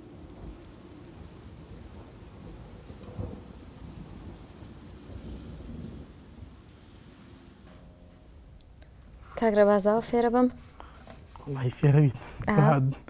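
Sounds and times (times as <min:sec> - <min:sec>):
thunder rolling: 0:00.0 - 0:08.5
steady rain falling: 0:00.0 - 0:13.0.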